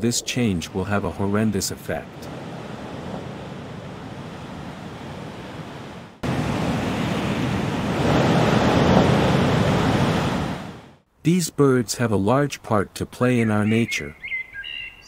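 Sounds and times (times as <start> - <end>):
ocean waves breaking: 0.4 - 11.0.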